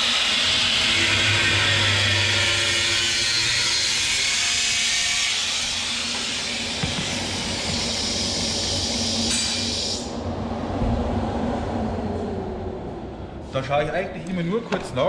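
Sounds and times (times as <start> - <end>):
power tool cutting metal: 0.0 - 10.1.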